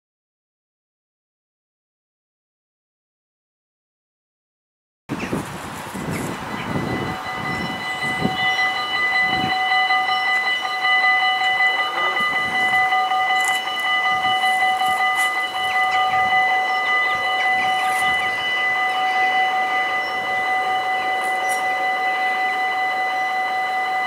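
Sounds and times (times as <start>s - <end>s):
rails singing: 5.1s - 24.0s
train approaching with high whine: 5.1s - 24.0s.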